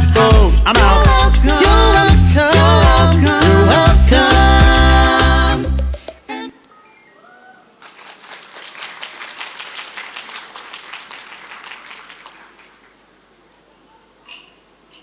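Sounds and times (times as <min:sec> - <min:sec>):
faint high voices: 0:06.3 - 0:07.8, 0:13.5 - 0:14.6
audience applauding: 0:07.8 - 0:13.2.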